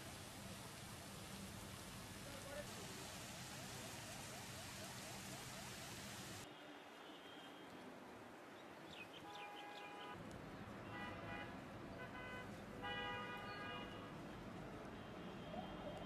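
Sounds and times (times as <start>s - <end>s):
vehicle horns honking: 10.9s - 14.0s.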